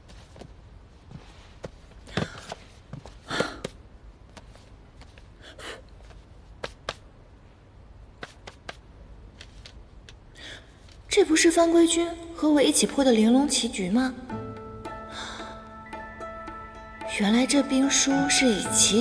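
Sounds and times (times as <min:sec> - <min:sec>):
pages rustling: 0:00.0 - 0:07.1, 0:08.2 - 0:10.2.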